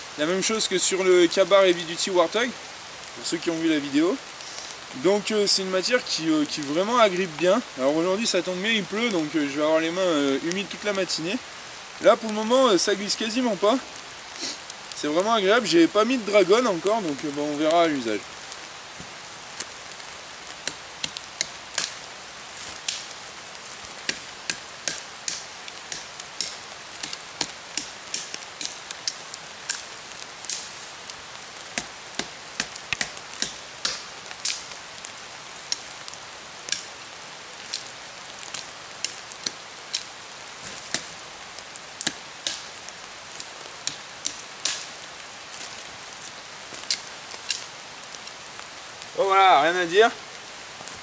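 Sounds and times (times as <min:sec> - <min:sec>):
rain hissing: 0:00.0 - 0:51.0
knife striking dry branches: 0:20.6 - 0:22.0, 0:24.0 - 0:30.7, 0:31.6 - 0:34.8, 0:38.5 - 0:41.1, 0:42.0 - 0:42.8, 0:43.8 - 0:44.9.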